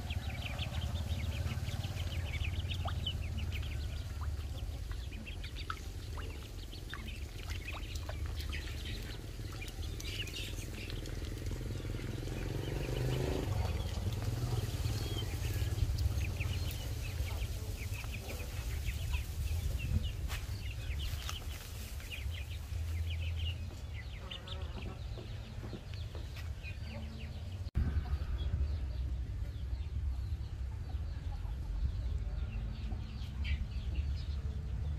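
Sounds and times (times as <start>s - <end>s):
steady low rumble: 0.0s - 12.8s, 27.4s - 34.9s
low drone rising in pitch: 0.0s - 21.0s
ducklings peeping: 0.0s - 34.9s.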